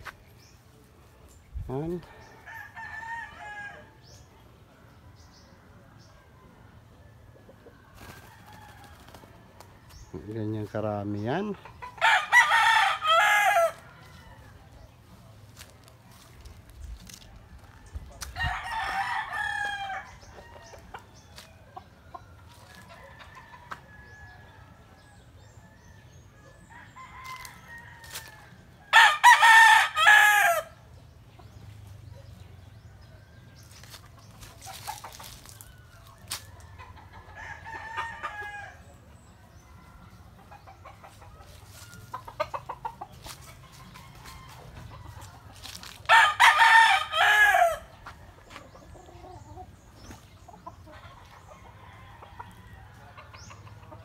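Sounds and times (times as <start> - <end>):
faint rooster crows and clucks: 0.0 - 54.0
rooster crowing: 2.4 - 4.0, 12.0 - 14.6, 26.7 - 30.8, 46.1 - 47.9.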